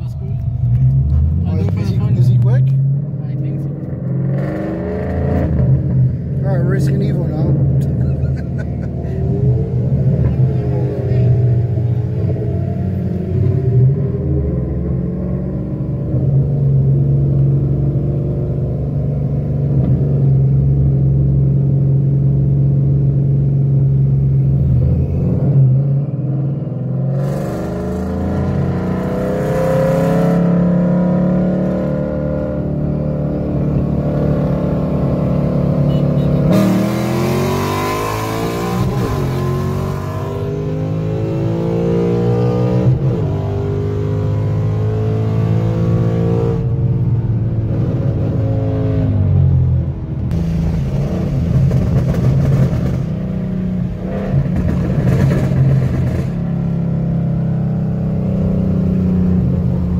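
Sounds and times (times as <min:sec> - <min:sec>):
car engine accelerating from cabin: 0:00.0 - 0:59.9
loud rushing noise: 0:50.3 - 0:53.2.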